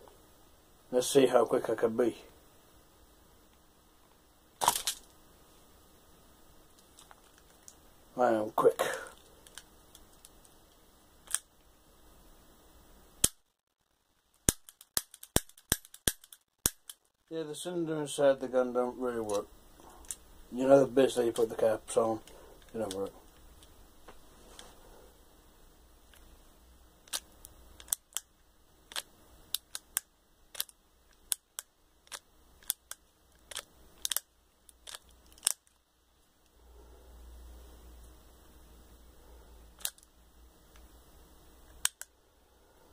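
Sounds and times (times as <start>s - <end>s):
toy cap gun clicking: 14.5s - 17.0s, 27.0s - 28.3s, 28.9s - 35.6s
toy gun hammer clicks: 14.5s - 17.0s.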